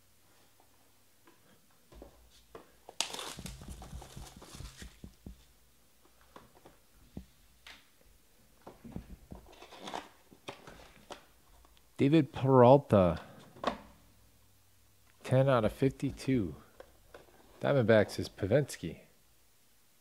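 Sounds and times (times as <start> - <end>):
cardboard box rustling and tapping: 3.2 - 5.5.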